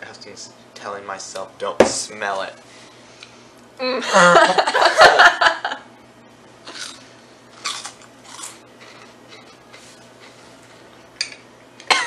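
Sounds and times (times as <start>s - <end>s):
crunchy snack being chewed: 6.7s - 11.0s.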